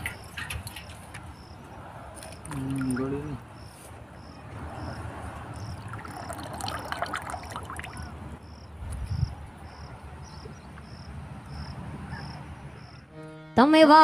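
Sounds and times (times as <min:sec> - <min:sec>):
cricket chirping: 0:00.0 - 0:13.1
liquid trickling into tank: 0:02.2 - 0:03.4, 0:05.6 - 0:08.3.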